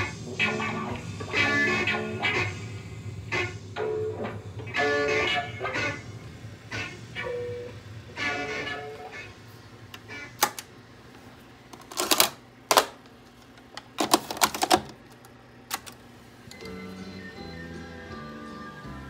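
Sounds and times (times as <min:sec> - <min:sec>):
music from tape: 0:00.0 - 0:10.6, 0:15.7 - 0:19.0
mechanical clicks and clunks: 0:09.9 - 0:10.7, 0:11.7 - 0:16.8.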